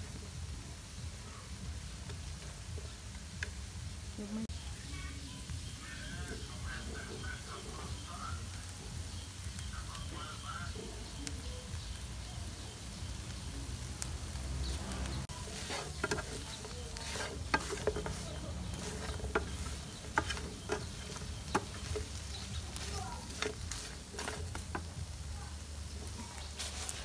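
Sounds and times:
chicken sizzling in a frying pan: 0:00.0 - 0:27.0
wooden spatula scraping a pan: 0:15.1 - 0:25.1, 0:26.0 - 0:27.0.

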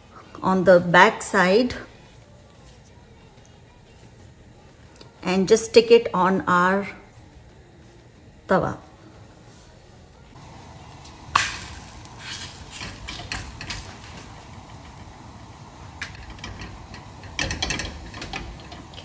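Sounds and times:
low sizzle: 0:00.0 - 0:19.0
dough slapping onto hot pan: 0:11.3 - 0:14.3.

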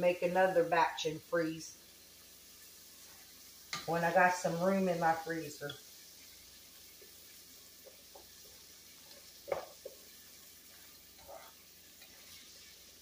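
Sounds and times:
onions sizzling in oil: 0:00.0 - 0:13.0
utensil scraping a pot: 0:10.7 - 0:12.5.

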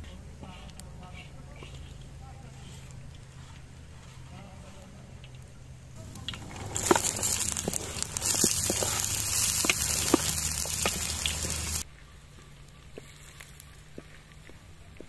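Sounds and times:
fat sizzling in a pan: 0:06.0 - 0:11.8.

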